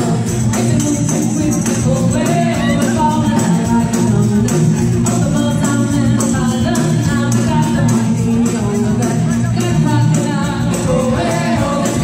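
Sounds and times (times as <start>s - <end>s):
drums: 0.0s - 12.0s
electric guitar: 0.0s - 12.0s
keyboard: 0.0s - 12.0s
person singing: 0.0s - 12.0s.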